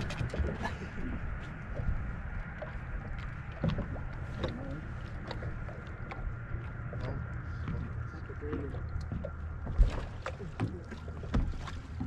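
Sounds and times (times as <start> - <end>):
low wind rumble: 0.0 - 12.0
waves lapping against boat hull: 0.0 - 12.0.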